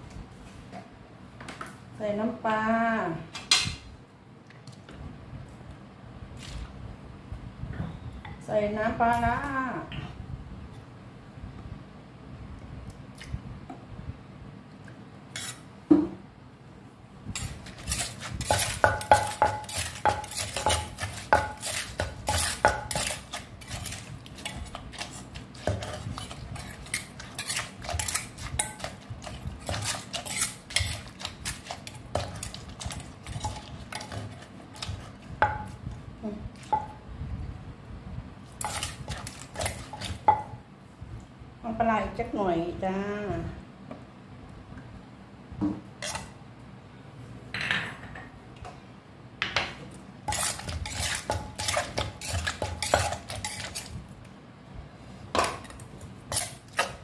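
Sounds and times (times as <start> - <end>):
metal spoon clinking and scraping: 17.4 - 35.0, 38.6 - 40.2, 50.3 - 54.0, 55.7 - 57.0
wooden pestle pounding in mortar: 17.7 - 26.8.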